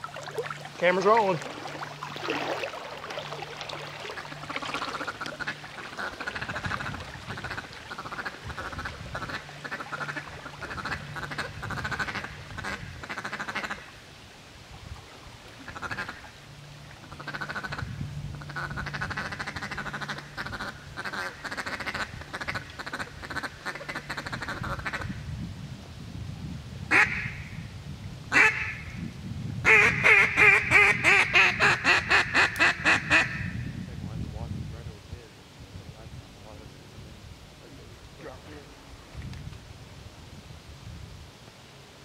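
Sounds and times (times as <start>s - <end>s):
low steady hum: 0.0s - 42.0s
ducks calling: 3.2s - 14.0s, 15.6s - 16.3s, 17.0s - 25.1s, 26.9s - 27.5s, 28.3s - 28.9s, 29.7s - 33.6s.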